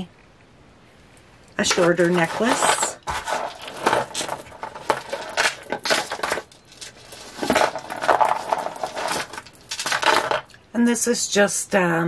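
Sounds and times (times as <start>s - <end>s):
beads clicking and clinking: 1.5s - 10.6s.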